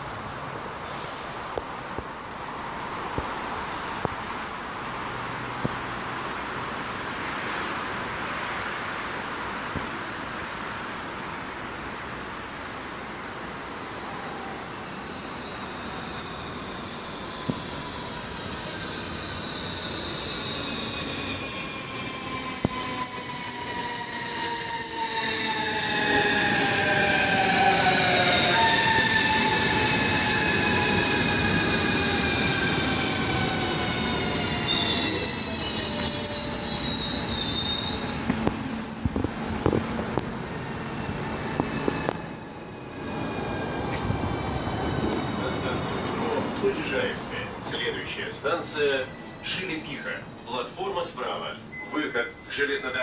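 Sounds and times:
rumble of passing train cars: 0.0 - 53.0
high steady brake squeal: 10.4 - 38.5, 48.7 - 50.2.

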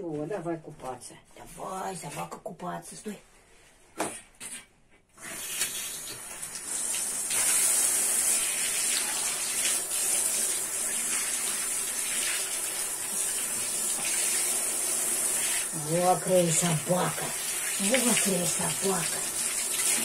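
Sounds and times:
shower water spraying into tub: 5.2 - 20.0.

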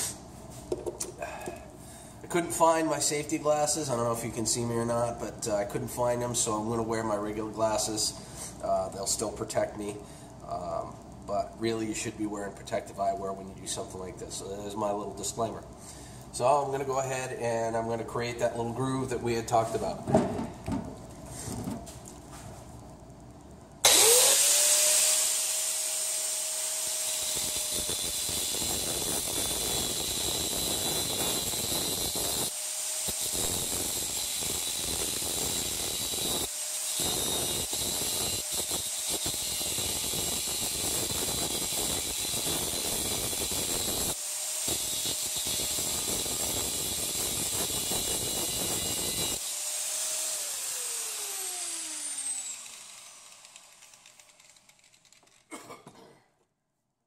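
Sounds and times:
angle grinder grinding steel: 23.8 - 55.4
grinder motor winding down: 23.8 - 55.4.

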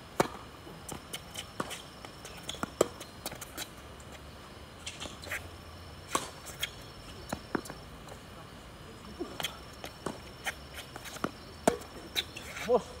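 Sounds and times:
tennis ball struck by rackets: 0.2 - 0.4, 6.1 - 7.8, 11.2 - 11.9
tennis ball bouncing on court: 0.2 - 3.7, 6.0 - 7.8, 9.2 - 12.4.

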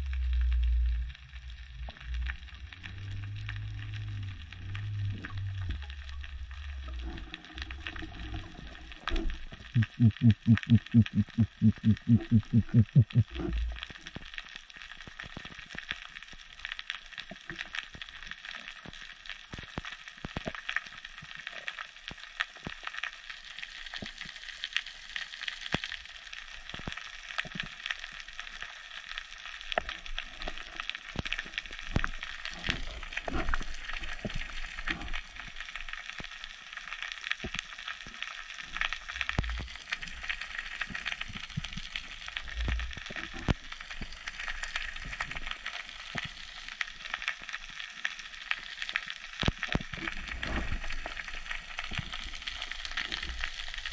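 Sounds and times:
underwater crackling of snapping shrimp: 0.0 - 53.9
dull low thumps: 9.8 - 13.4.

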